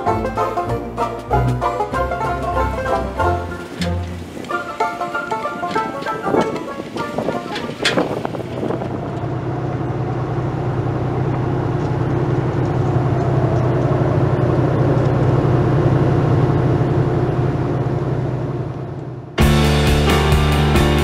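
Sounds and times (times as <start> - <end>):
music: 0.0 - 8.0, 19.4 - 21.0
engine humming: 0.0 - 21.0.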